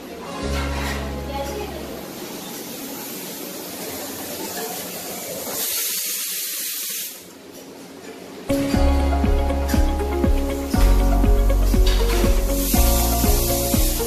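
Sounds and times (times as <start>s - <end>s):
music: 0.4s - 2.1s, 8.5s - 14.0s
steady hiss: 2.0s - 7.5s, 9.5s - 14.0s.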